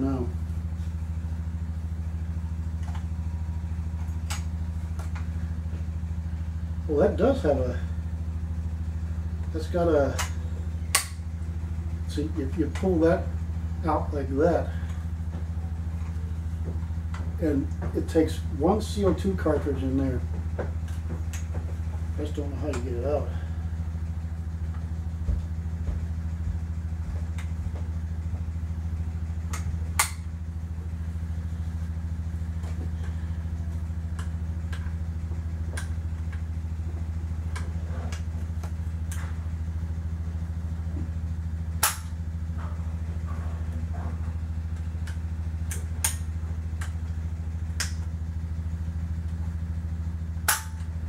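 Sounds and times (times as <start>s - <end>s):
low hum: 0.0s - 51.0s
sharp snaps: 10.2s - 11.2s, 29.5s - 30.3s, 41.8s - 42.2s, 47.8s - 48.1s.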